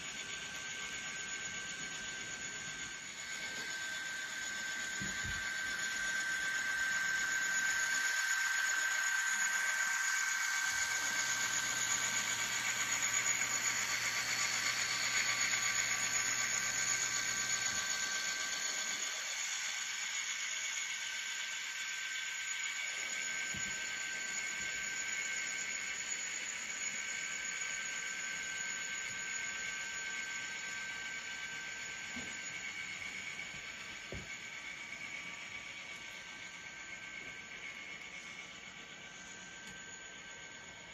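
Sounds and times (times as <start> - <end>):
model train running past: 34.6 - 40.8.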